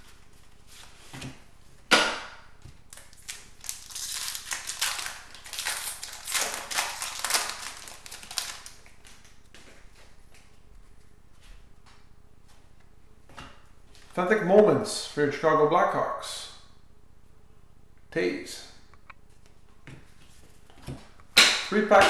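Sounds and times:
wrapper crinkling: 2.9s - 9.4s
wrapper snapping open: 2.9s - 9.4s.

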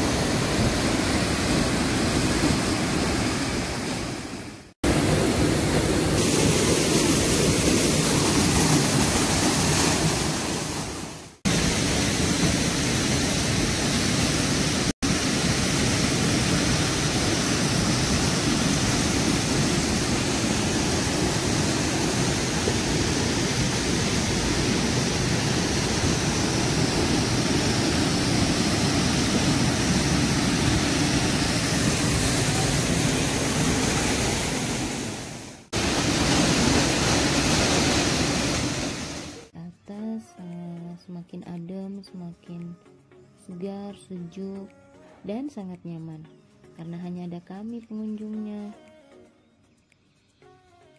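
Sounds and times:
waterfall rushing and splashing: 0.0s - 39.5s.

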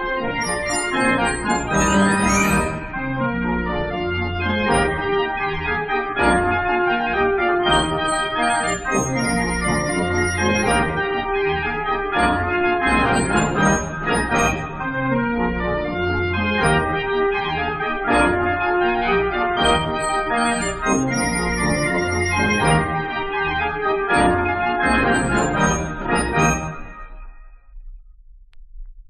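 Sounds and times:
street organ playing a tune: 0.4s - 5.1s, 7.7s - 11.2s, 12.1s - 17.0s, 18.0s - 26.9s.

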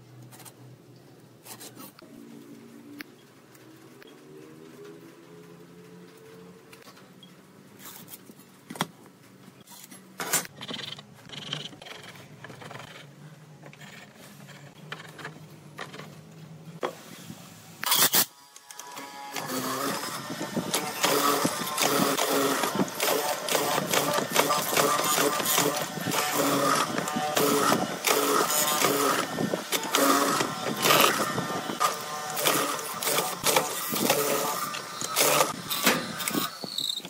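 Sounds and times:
mortiser cutting wood: 18.8s - 37.0s.

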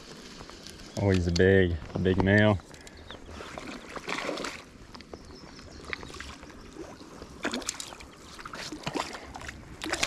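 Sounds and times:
pond water splashing: 3.2s - 10.0s.

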